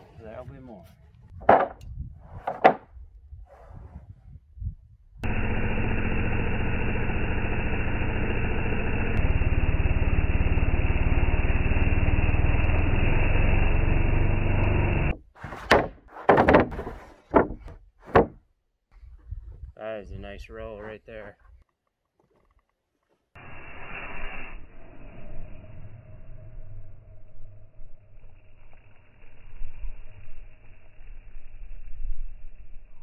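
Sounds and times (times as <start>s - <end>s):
wooden boards knocking: 1.4s - 1.8s, 2.4s - 2.9s, 15.5s - 18.4s.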